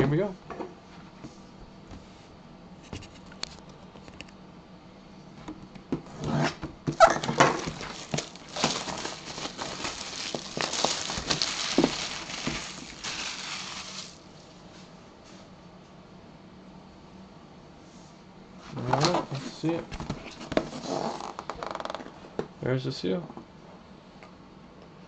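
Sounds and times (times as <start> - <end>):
cardboard rustling and scraping: 6.2 - 14.2, 18.8 - 21.3.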